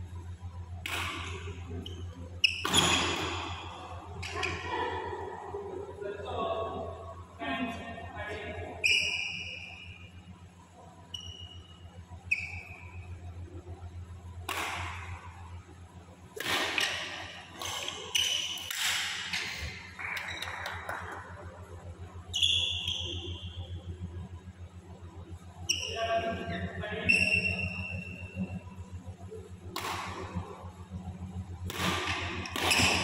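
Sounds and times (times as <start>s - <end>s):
low hum: 0.0s - 33.0s
racquet striking shuttlecock: 0.8s - 1.5s, 14.4s - 15.2s, 16.4s - 19.5s, 29.7s - 30.4s, 31.7s - 33.0s
shoes squeaking on floor: 1.8s - 3.6s, 17.6s - 18.6s.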